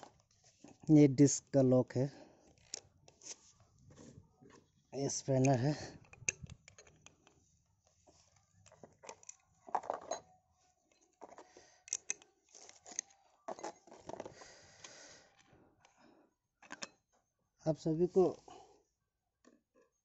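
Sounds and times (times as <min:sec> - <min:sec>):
light metal clicks and scrapes: 0:02.4 - 0:15.0.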